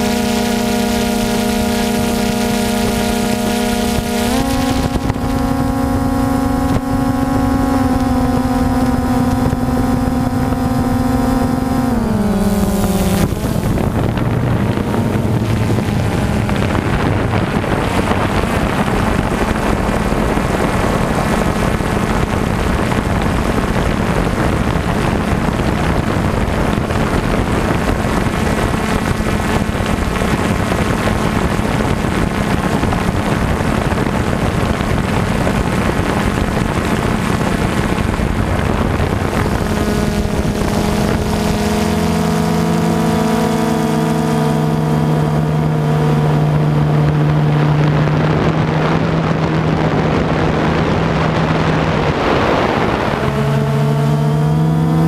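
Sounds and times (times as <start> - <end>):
drone propellers humming: 0.0 - 55.0
wind noise: 0.0 - 55.0.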